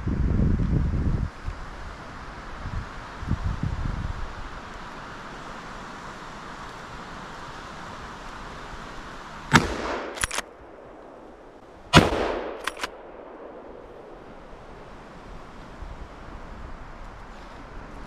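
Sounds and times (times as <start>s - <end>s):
rifle action double click: 9.5s - 10.6s, 12.0s - 13.4s
rifle shots with long echo: 9.5s - 15.0s.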